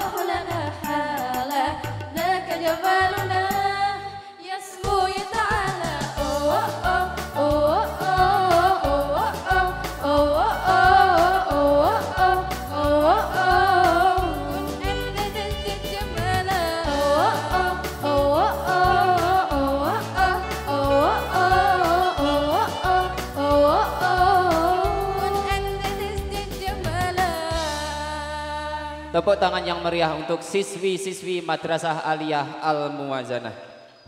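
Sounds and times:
woman singing into a microphone: 0:00.0 - 0:29.2
electronic keyboard accompaniment: 0:05.7 - 0:28.0.

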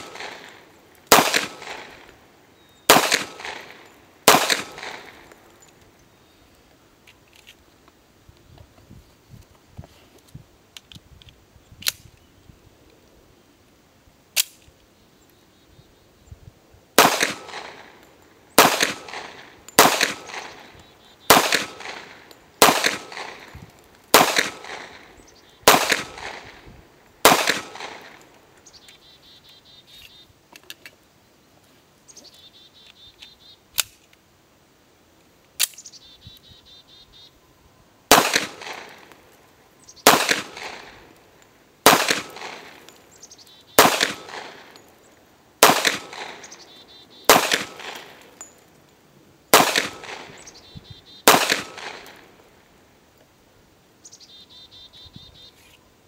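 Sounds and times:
pistol shots with echo: 0:00.0 - 0:02.1, 0:02.9 - 0:05.4, 0:17.0 - 0:18.0, 0:18.6 - 0:26.6, 0:27.2 - 0:28.2, 0:38.1 - 0:39.2, 0:40.0 - 0:41.1, 0:41.8 - 0:42.9, 0:43.7 - 0:44.8, 0:45.6 - 0:48.4, 0:49.5 - 0:52.3
sharp gun clicks: 0:00.0 - 0:02.2, 0:02.9 - 0:05.8, 0:14.4 - 0:14.7, 0:17.0 - 0:18.0, 0:18.6 - 0:25.1, 0:25.7 - 0:26.6, 0:27.2 - 0:28.4, 0:32.9 - 0:34.2, 0:38.1 - 0:39.2, 0:40.0 - 0:43.0, 0:43.7 - 0:44.9, 0:45.6 - 0:46.6, 0:47.3 - 0:48.5, 0:49.5 - 0:50.6, 0:51.2 - 0:52.3.

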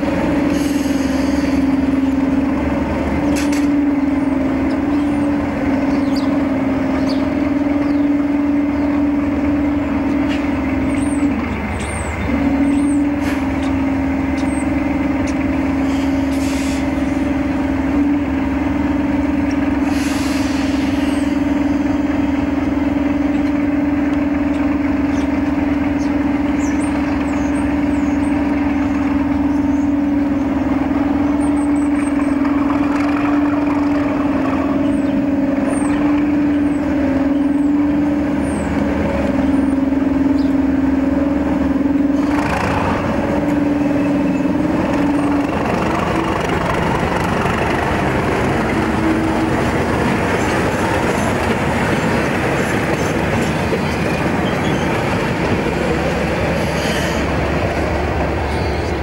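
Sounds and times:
diesel locomotive engine droning: 0:00.0 - 0:59.0.

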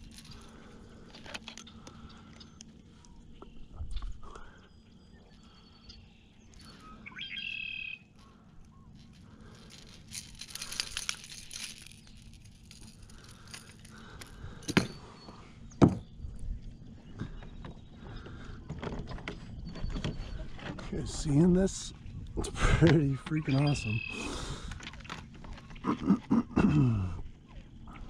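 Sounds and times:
handling rustling: 0:00.0 - 0:01.7, 0:08.9 - 0:15.0
faint clinks: 0:00.0 - 0:02.0, 0:08.2 - 0:15.3.

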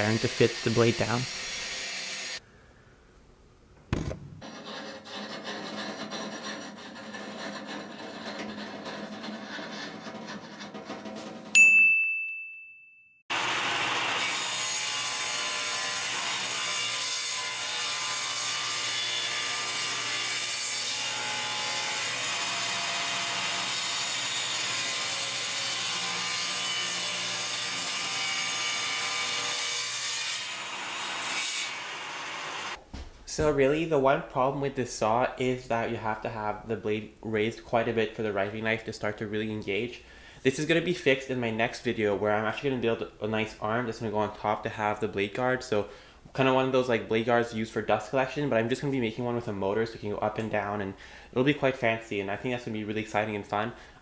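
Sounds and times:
table saw cutting wood: 0:00.0 - 0:02.4, 0:04.4 - 0:11.5, 0:13.3 - 0:32.8.

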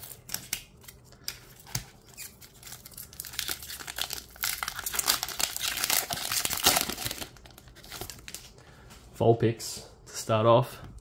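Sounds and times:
foil wrapper crinkling and tearing: 0:00.0 - 0:08.5.

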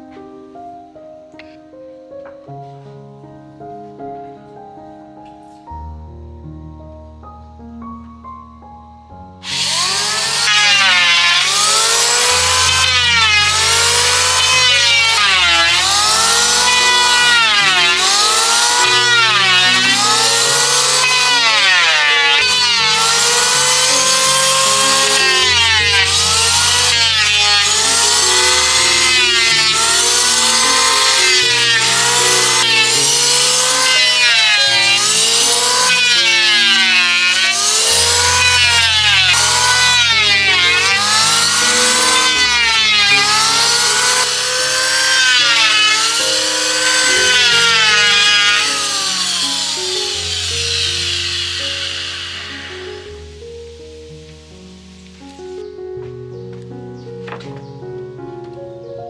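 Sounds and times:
hand saw cutting wood: 0:09.4 - 0:53.1.

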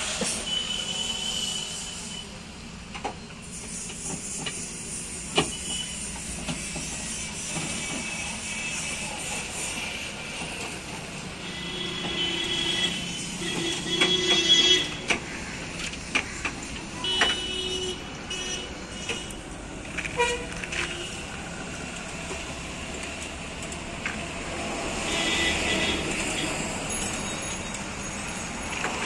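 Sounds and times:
road traffic: 0:00.0 - 0:29.0
vehicle horns tooting: 0:11.3 - 0:15.2, 0:16.9 - 0:19.4, 0:20.0 - 0:21.4, 0:24.9 - 0:27.7
sharp clicks and knocks: 0:13.5 - 0:17.4.

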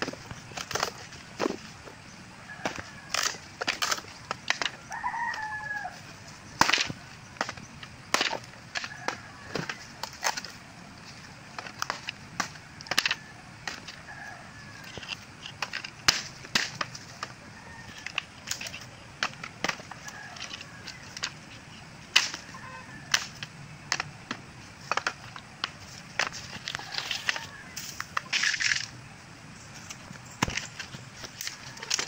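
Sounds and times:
machete chopping firewood: 0:02.6 - 0:04.9, 0:06.5 - 0:10.5, 0:11.6 - 0:13.9, 0:15.5 - 0:17.3, 0:18.6 - 0:20.1, 0:22.1 - 0:28.8, 0:30.4 - 0:32.0.

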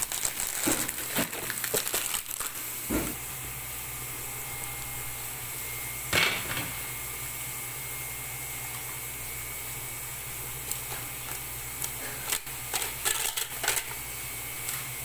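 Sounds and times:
plastic packaging crinkling: 0:00.0 - 0:03.0, 0:10.7 - 0:14.0
water heating hiss and hum: 0:00.0 - 0:15.0.

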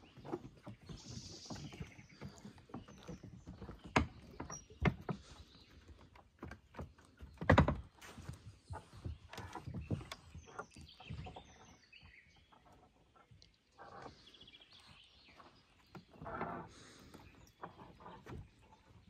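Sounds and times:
footsteps on a path: 0:00.0 - 0:07.3
small birds chirping: 0:00.0 - 0:19.0.

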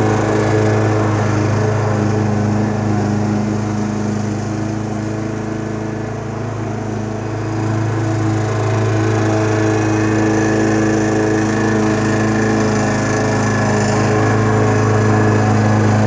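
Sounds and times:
lawn mower running: 0:00.0 - 0:16.0.

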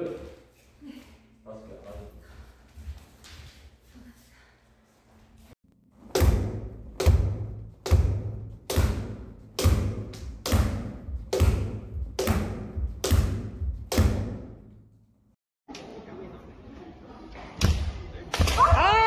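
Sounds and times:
wooden sword thudding on a post: 0:06.2 - 0:14.5.

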